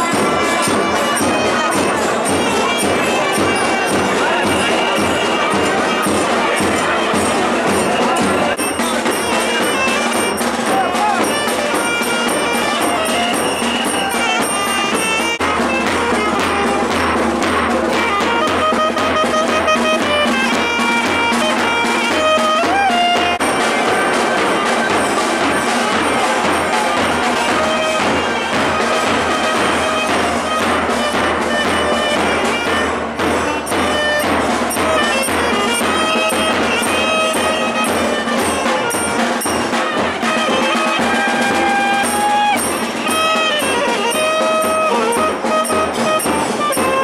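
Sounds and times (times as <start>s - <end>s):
saxophone melody: 9.3s - 23.7s, 27.4s - 47.0s.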